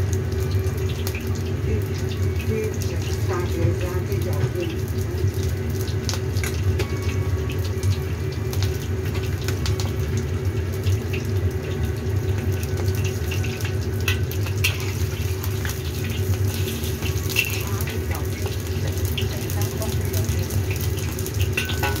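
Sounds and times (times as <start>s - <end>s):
food sizzling in hot oil: 0.0s - 22.0s.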